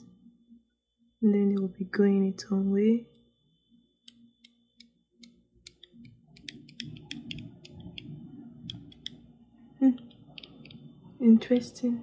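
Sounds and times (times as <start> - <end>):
small clicks and ticks: 4.0 - 9.2.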